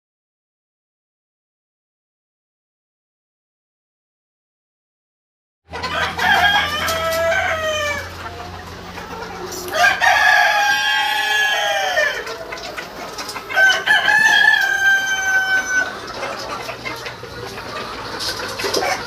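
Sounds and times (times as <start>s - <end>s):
rooster crowing: 5.8s - 8.2s, 9.7s - 12.3s, 13.5s - 16.0s.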